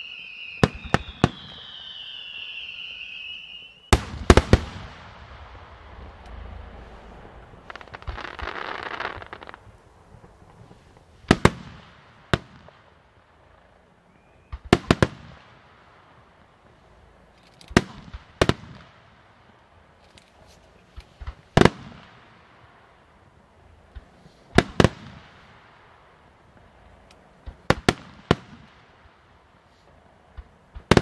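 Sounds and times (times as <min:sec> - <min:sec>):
fireworks crackling: 0:00.0 - 0:31.0.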